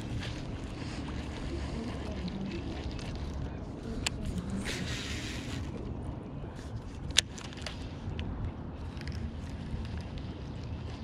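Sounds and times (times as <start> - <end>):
low steady rumble: 0.0 - 11.0.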